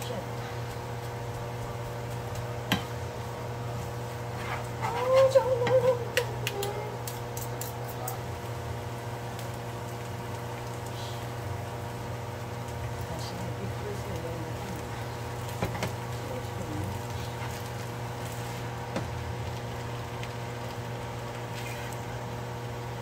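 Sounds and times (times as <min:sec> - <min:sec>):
low kitchen hum: 0:00.0 - 0:23.0
wavering pitched vocal sound: 0:04.8 - 0:07.0.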